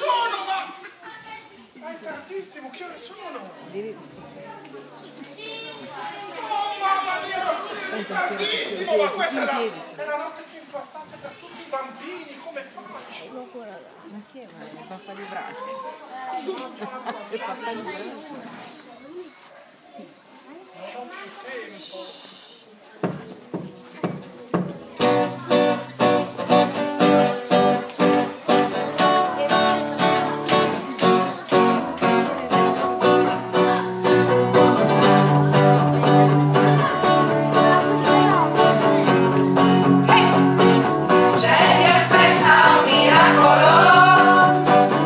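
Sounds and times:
guitars strumming: 23.4 - 45.0
group of voices singing: 39.9 - 45.0.

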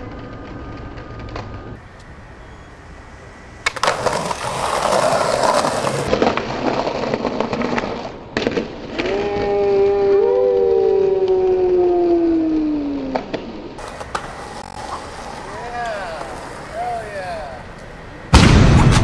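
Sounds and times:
skateboard wheels rolling on concrete: 0.0 - 18.3
skateboard snapping crack: 3.6 - 9.2, 13.1 - 15.2.

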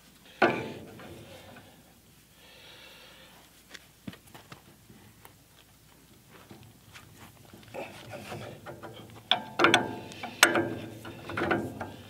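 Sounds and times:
person breathing: 0.2 - 3.6.

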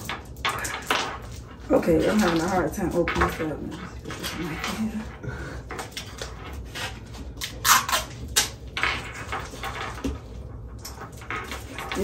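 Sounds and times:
plastic wrapper crinkling: 7.3 - 8.6.

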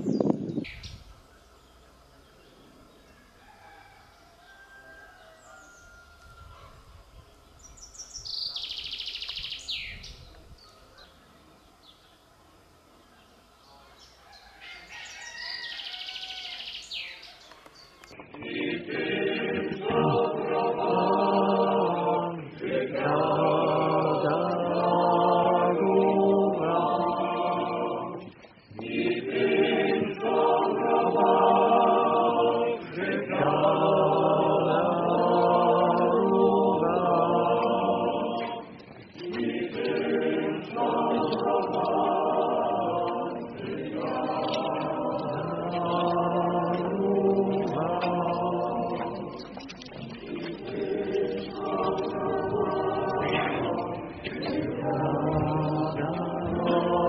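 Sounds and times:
birds chirping: 0.0 - 25.1, 26.6 - 57.0
choir singing a chant: 18.2 - 57.0.

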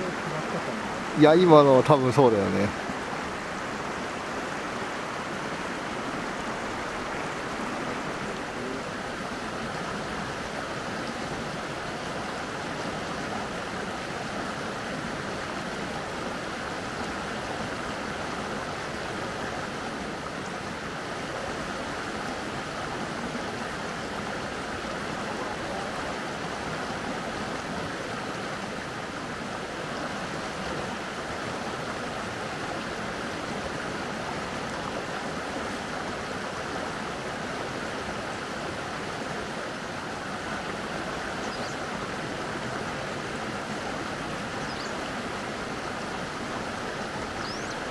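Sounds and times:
stream water rushing: 0.0 - 47.9.

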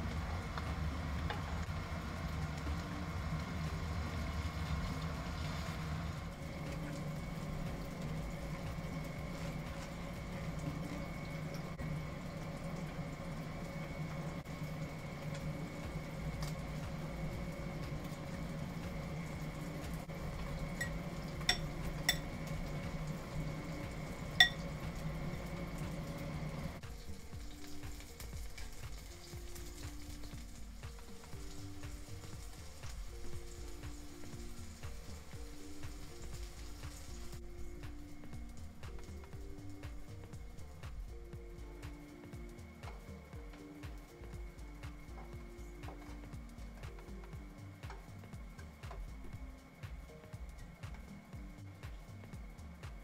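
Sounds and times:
steady low hum: 0.0 - 53.0.

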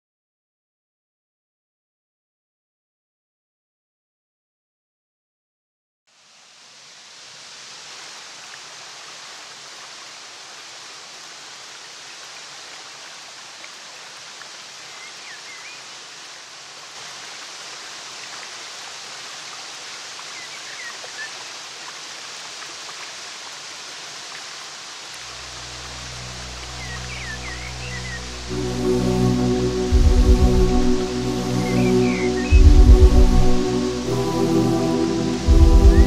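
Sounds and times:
faint high bird chirps: 14.8 - 15.9
low music notes: 25.6 - 36.0
steady rushing ambience: 26.0 - 36.0.

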